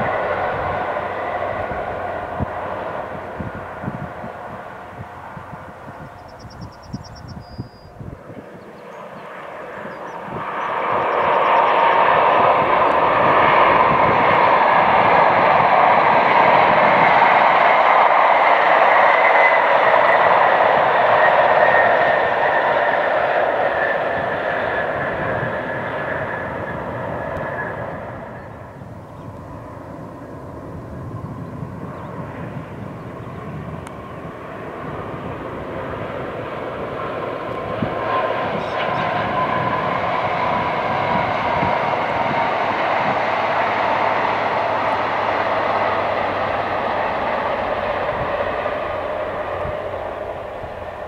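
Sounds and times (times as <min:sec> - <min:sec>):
diesel train passing at speed: 0:00.0 - 0:51.0.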